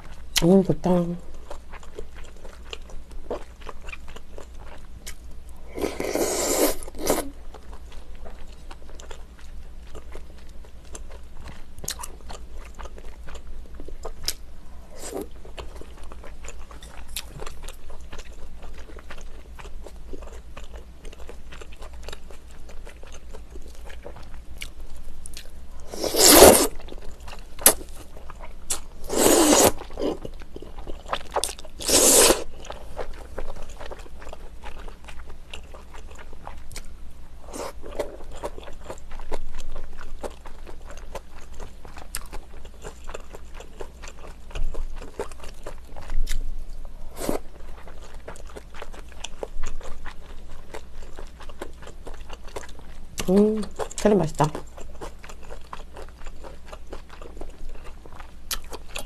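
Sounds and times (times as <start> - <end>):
close-miked chewing: 1.3 - 14.4, 15.0 - 59.0
loud slurps of broth: 5.8 - 7.3, 25.9 - 26.7, 29.1 - 29.8, 31.8 - 32.4.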